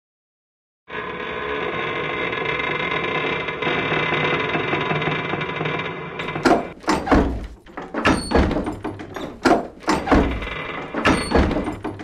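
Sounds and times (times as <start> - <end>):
heavy ringing knocks: 6.2 - 12.0.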